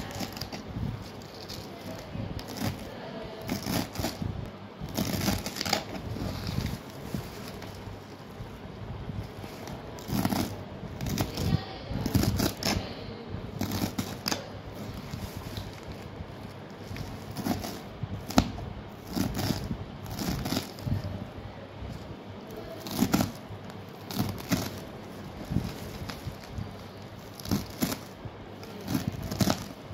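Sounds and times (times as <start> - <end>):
knife slicing through spinach: 3.5 - 4.3.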